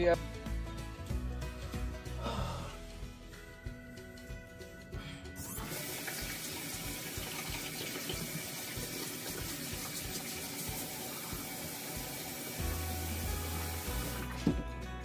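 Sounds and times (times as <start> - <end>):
hands being washed: 5.4 - 14.7
tap running into basin: 5.6 - 14.7.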